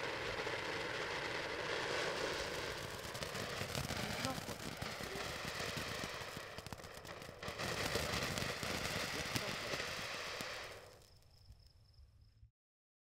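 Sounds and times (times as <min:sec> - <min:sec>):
firework fountain hissing and crackling: 0:00.0 - 0:12.0.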